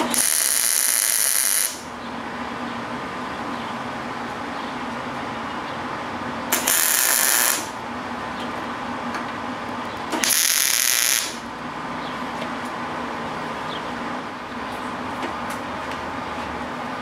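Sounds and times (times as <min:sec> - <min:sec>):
welding arc hissing: 0:00.0 - 0:01.9, 0:06.5 - 0:07.8, 0:10.2 - 0:11.5.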